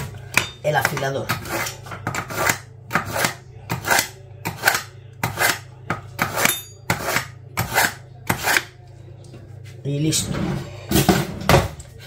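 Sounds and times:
knife scraping on sharpener: 1.4 - 8.7.

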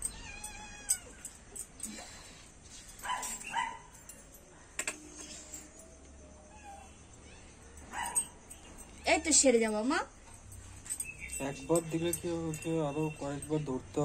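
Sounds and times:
dog whining: 5.4 - 9.2.

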